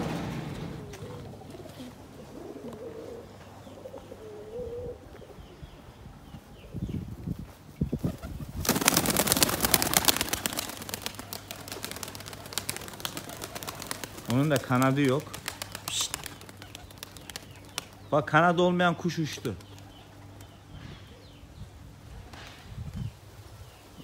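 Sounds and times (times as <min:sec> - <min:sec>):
pigeons cooing: 0:00.0 - 0:07.0, 0:08.0 - 0:18.1
pigeon wing beats: 0:08.0 - 0:18.0.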